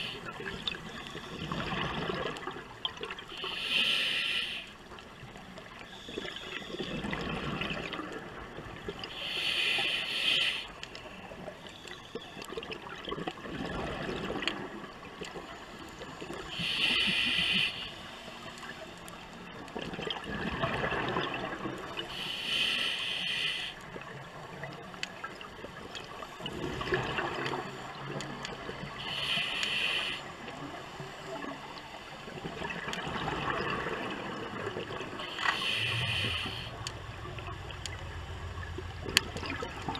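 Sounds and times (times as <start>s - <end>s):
exhaled bubbles gurgling: 0.0s - 4.2s, 5.0s - 15.6s, 19.4s - 39.9s
regulator hissing inhalations: 3.3s - 4.8s, 9.0s - 10.8s, 16.4s - 18.4s, 22.1s - 23.8s, 28.9s - 30.4s, 35.2s - 36.9s.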